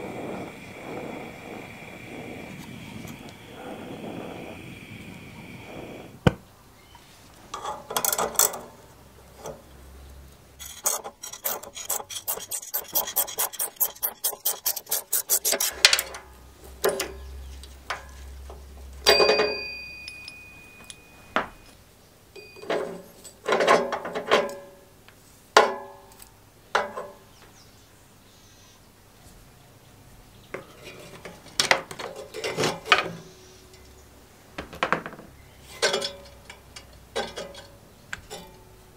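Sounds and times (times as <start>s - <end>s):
ratchet clicks: 10.6s - 16.1s.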